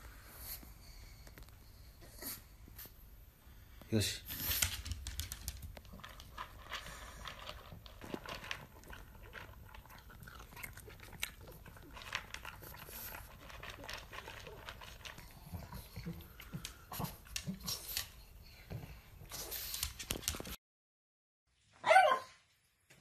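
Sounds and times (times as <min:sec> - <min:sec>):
dog crunching dry kibble: 0:04.4 - 0:18.1, 0:19.7 - 0:20.6.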